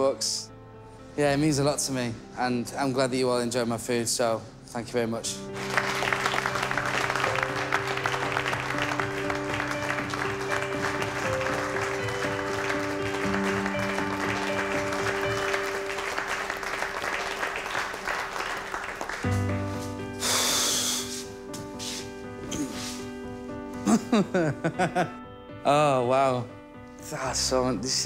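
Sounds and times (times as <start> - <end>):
background music: 0.0 - 28.0
people clapping: 5.5 - 19.6.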